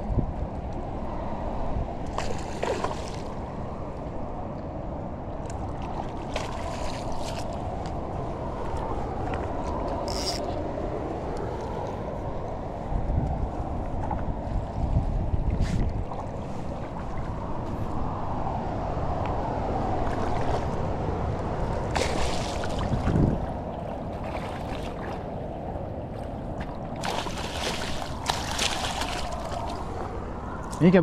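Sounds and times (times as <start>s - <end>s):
river water running: 1.9s - 12.8s, 15.4s - 31.0s
water splashing: 21.8s - 25.4s, 26.2s - 30.2s.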